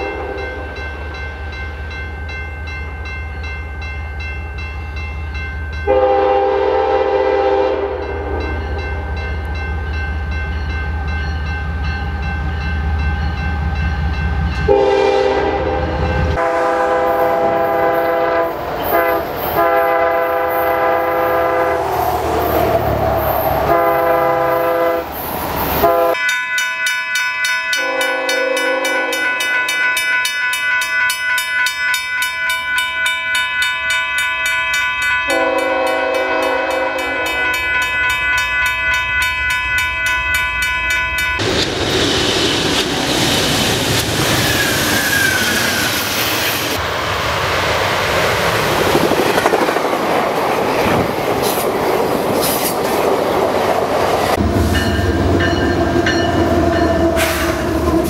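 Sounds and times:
locomotive horn blasts: 0.0 - 0.8, 5.8 - 8.8, 14.7 - 22.0, 23.6 - 25.2, 25.8 - 26.3, 27.7 - 29.6, 35.3 - 37.6
train rushing past: 0.0 - 26.2, 35.3 - 58.0
long horn chords: 5.8 - 8.6, 14.7 - 22.0, 23.6 - 25.2, 25.8 - 26.2, 27.8 - 29.3, 35.3 - 37.4
steady high ringing: 26.1 - 41.6
short high squeal: 44.2 - 46.8.

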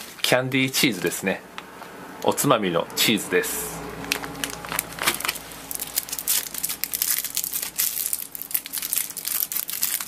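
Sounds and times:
plastic wrapper crinkling: 4.0 - 10.0.

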